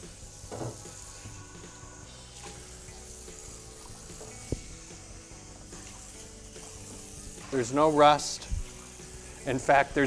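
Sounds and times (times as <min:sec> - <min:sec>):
faucet water splashing: 0:02.1 - 0:10.0.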